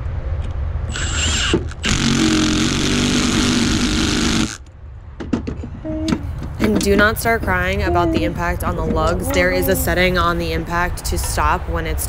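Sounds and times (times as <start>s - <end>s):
impact driver spinning: 0.9s - 4.6s.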